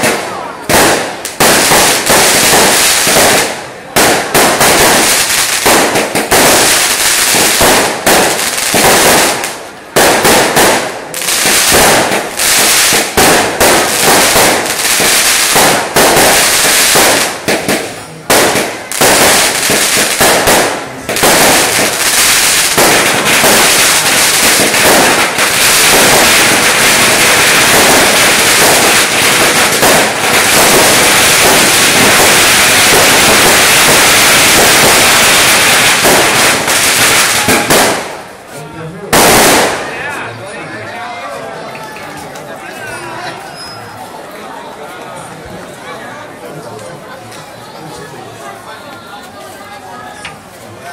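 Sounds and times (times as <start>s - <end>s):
fireworks bangs and crackles: 0.0s - 40.7s.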